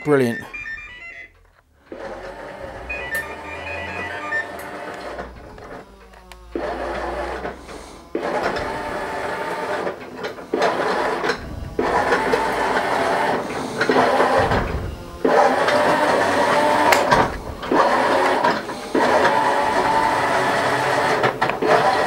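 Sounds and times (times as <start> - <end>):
toy robot motors whirring: 1.8 - 22.0.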